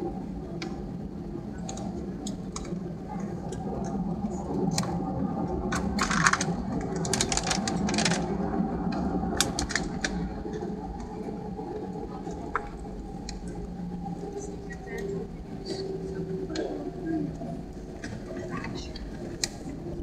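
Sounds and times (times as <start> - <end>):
aircraft engines humming: 0.0 - 20.0.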